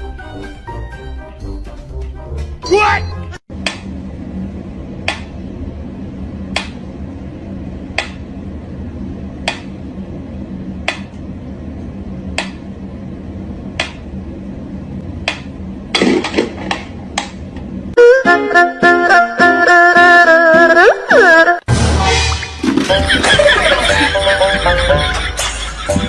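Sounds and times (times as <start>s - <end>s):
steady low hum: 3.5s - 18.1s.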